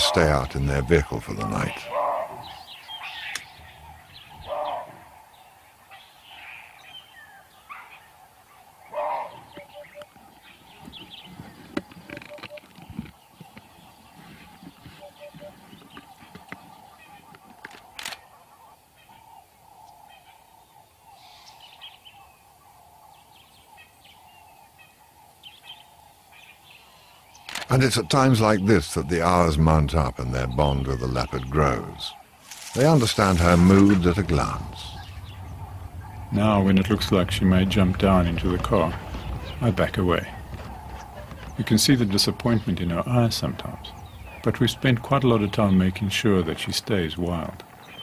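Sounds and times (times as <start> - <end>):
birds chirping and whistling: 0.0 - 18.0, 19.0 - 48.0
lower louder bird call: 14.1 - 16.1, 16.8 - 48.0
faint steady drone: 18.0 - 47.6.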